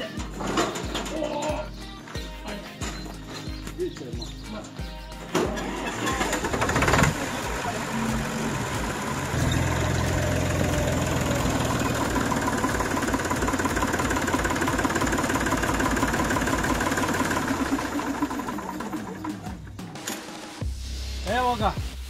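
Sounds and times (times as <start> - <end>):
tractor diesel engine idling: 5.3 - 19.8.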